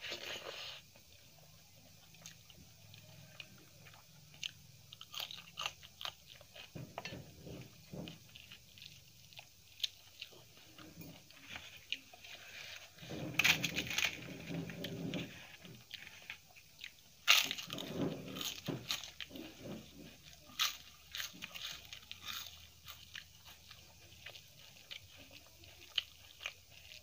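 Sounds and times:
crisp cracker crackling: 0.0 - 27.0
chewing and mouth clicks: 1.8 - 12.6, 14.1 - 27.0.

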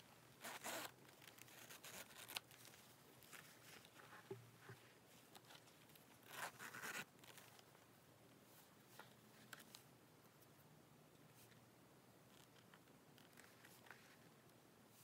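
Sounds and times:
zipper rasping: 0.4 - 2.4, 6.2 - 7.4
leather handling: 0.4 - 4.2, 5.2 - 7.7.

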